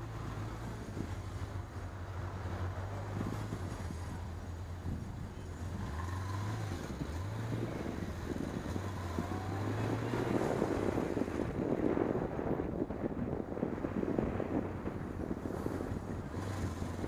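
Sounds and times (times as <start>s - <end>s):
rushing wind noise: 0.0s - 17.0s
motorcycle engine revving: 5.5s - 11.6s, 15.5s - 17.0s.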